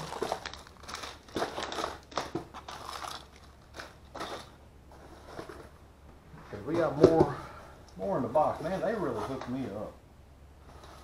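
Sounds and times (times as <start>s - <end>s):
candy bags crinkling: 0.0s - 4.6s.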